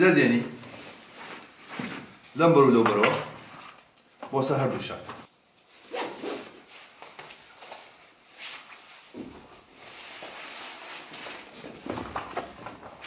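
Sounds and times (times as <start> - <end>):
nylon straps rustling: 0.6 - 2.4, 5.2 - 13.0.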